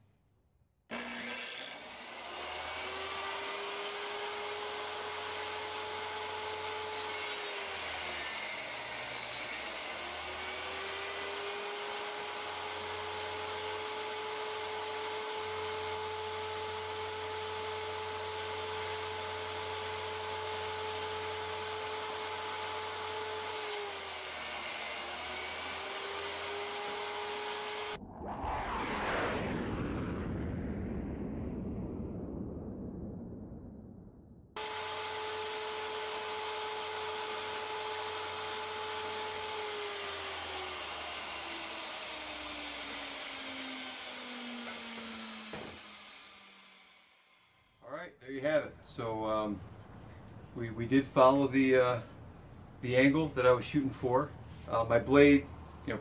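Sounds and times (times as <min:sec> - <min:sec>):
table saw whining: 0:00.9 - 0:28.0, 0:34.6 - 0:47.8.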